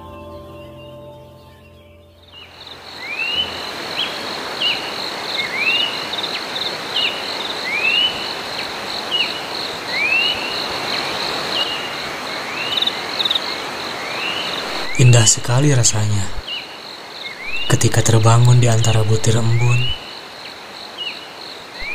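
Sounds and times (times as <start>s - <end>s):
high insect trill: 2.2s - 21.9s
dense insect hiss: 2.3s - 21.9s
short upswept call: 14.5s - 16.4s, 17.4s - 20.0s.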